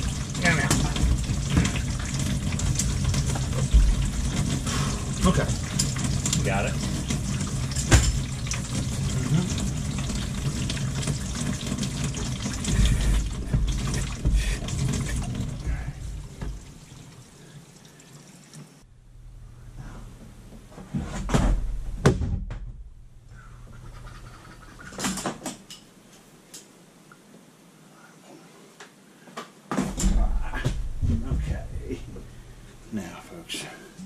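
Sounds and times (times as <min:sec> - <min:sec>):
faucet water running into sink: 0:00.0 - 0:18.8.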